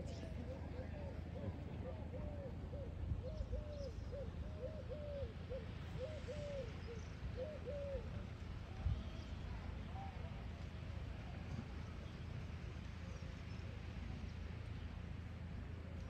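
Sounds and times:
bird cooing: 0.0s - 8.2s.

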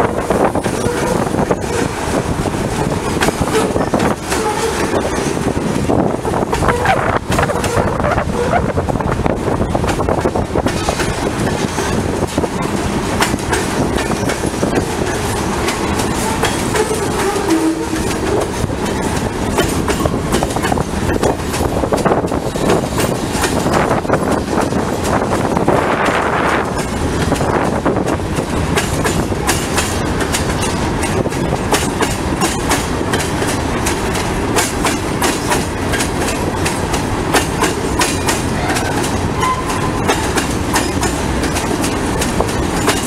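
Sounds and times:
freight train rolling past: 0.0s - 43.0s
steel wheels clicking over rail joints: 0.0s - 43.0s.

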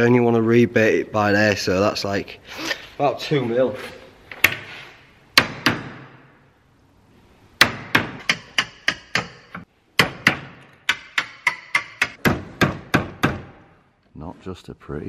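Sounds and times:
hammer striking chisel: 5.4s - 6.2s, 7.6s - 13.7s.

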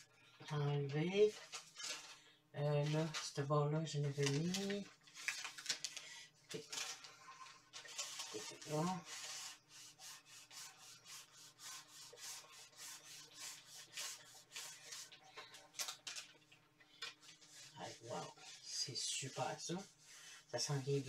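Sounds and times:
iron scraping over paper: 6.6s - 16.2s.

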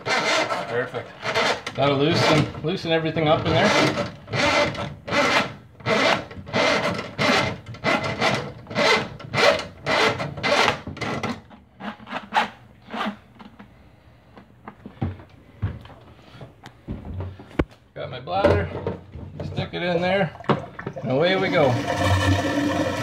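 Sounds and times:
drain snake scraping in pipe: 21.0s - 23.0s.

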